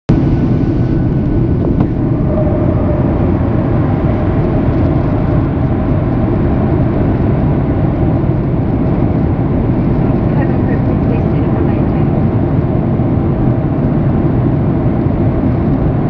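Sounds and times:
airplane cabin jet engine rush: 0.1 - 16.0.

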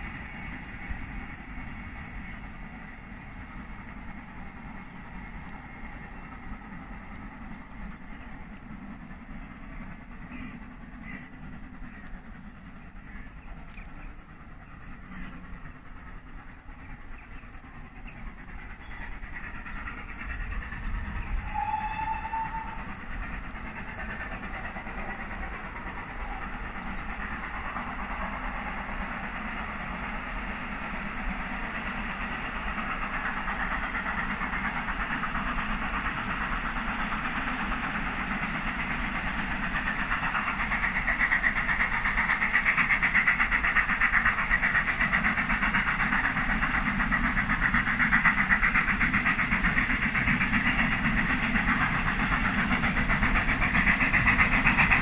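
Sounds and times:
steam locomotive exhaust beats: 0.0 - 55.0.

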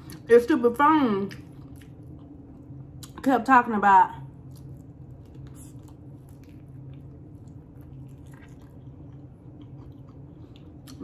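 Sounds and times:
low hum: 0.0 - 11.0
person chewing chicken wing: 4.4 - 11.0.

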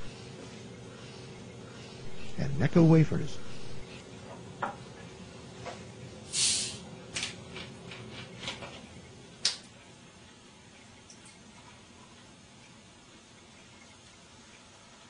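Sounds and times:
hiss of bottle carbonation: 6.3 - 6.9.

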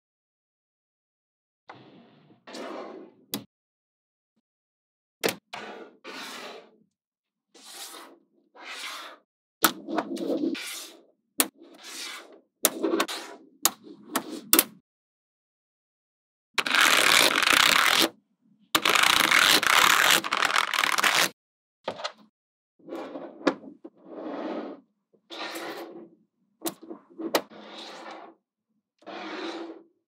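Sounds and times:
scraping noises: 1.7 - 3.3, 5.6 - 6.8, 22.8 - 28.4, 29.0 - 29.9.

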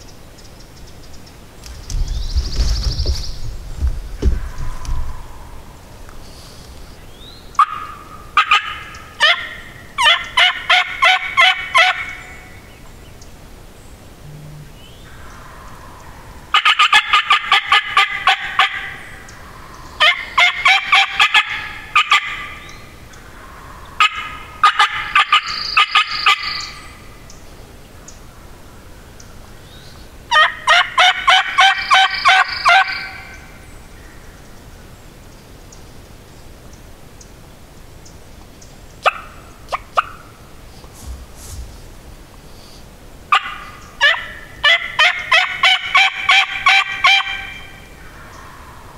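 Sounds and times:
turkey gobbling: 7.6 - 12.2, 15.2 - 19.0, 20.0 - 22.7, 23.9 - 26.8, 30.3 - 33.4, 39.0 - 40.3, 43.3 - 47.7.

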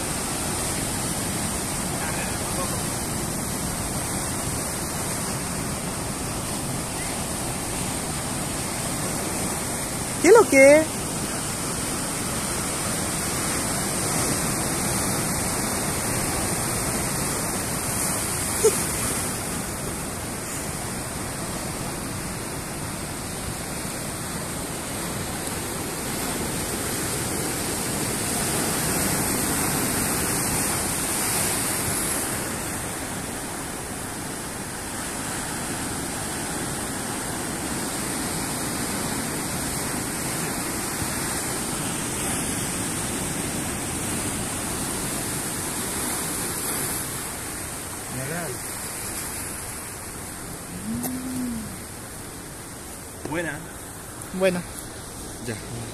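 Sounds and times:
surf washing among rocks: 0.0 - 55.9.

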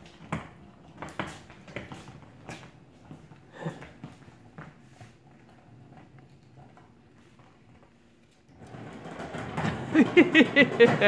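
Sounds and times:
skateboard wheels rolling on wood: 0.0 - 11.0.

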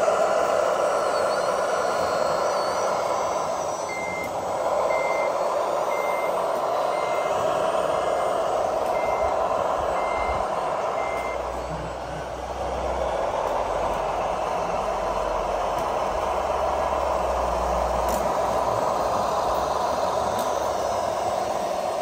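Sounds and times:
model loader engine running: 0.0 - 22.0
reversing beeper: 0.8 - 7.5, 8.1 - 12.5.

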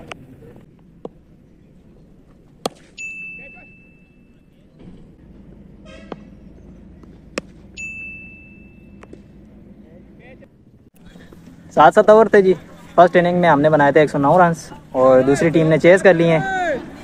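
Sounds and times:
cricket bat striking ball: 2.6 - 3.0, 7.0 - 7.8
high ding effect: 3.0 - 4.4, 7.8 - 9.0.

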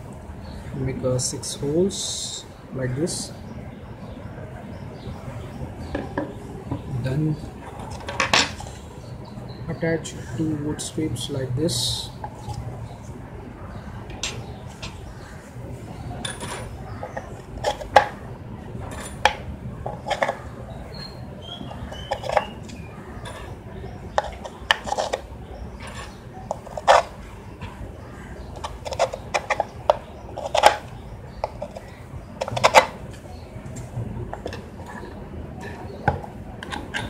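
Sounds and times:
clicks and knocks on wood: 24.1 - 25.2, 28.6 - 37.0.

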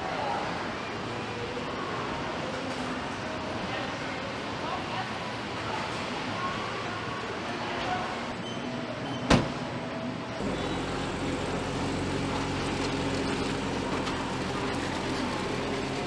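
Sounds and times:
car engine humming: 10.4 - 16.0.

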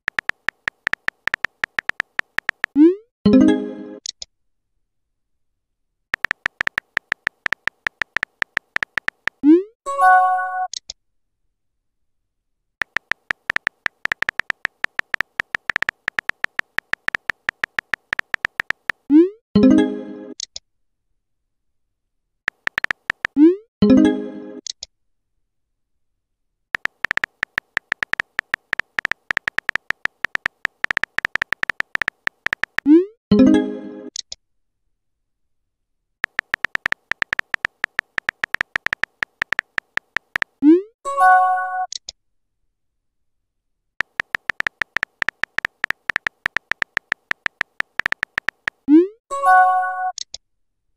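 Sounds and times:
typing beeps: 0.0 - 3.0, 6.2 - 9.7, 12.8 - 19.3, 22.5 - 23.6, 26.8 - 33.1, 36.2 - 40.8, 44.0 - 49.1.

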